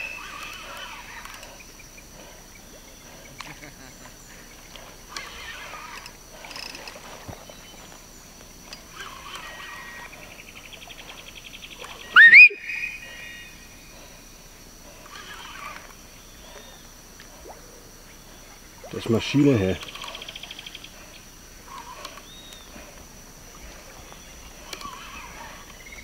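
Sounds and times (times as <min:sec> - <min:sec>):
rainforest wildlife calls: 0:00.0 - 0:26.0
loud rising whistle: 0:12.2 - 0:13.5.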